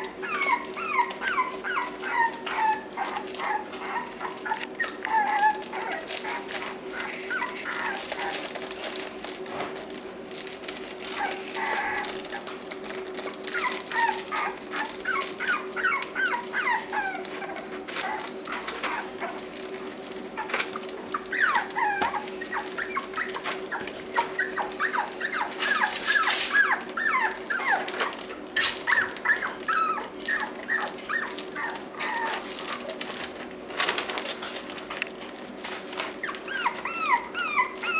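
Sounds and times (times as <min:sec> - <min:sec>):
puppies whining: 0:00.0 - 0:34.7, 0:35.3 - 0:37.9.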